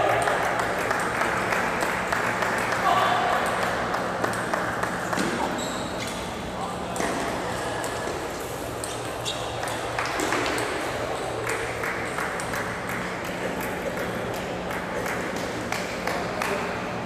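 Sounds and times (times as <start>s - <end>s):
steady low hum: 0.0s - 17.0s
table tennis balls clicking: 3.4s - 5.4s.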